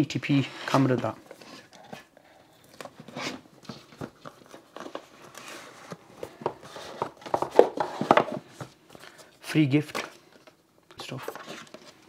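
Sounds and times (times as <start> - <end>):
cardboard packaging handled: 0.8 - 9.3.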